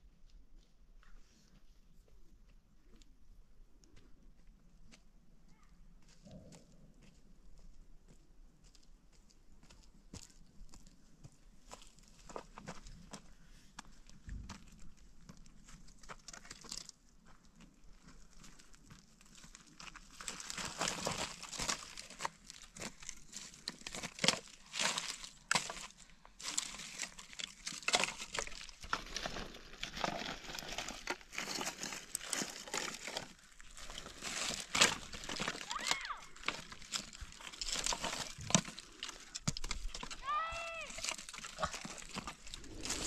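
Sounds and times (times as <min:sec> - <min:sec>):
stones crunching underfoot: 0:09.6 - 0:43.0
dry sticks rustling and snapping: 0:18.4 - 0:43.0.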